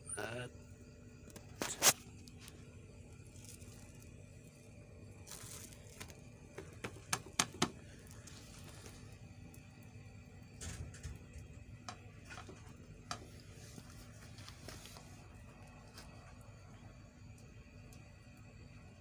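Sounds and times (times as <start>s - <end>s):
dough handling rustle: 1.4s - 9.6s, 12.2s - 16.6s
taps on metal griddle: 6.6s - 7.8s.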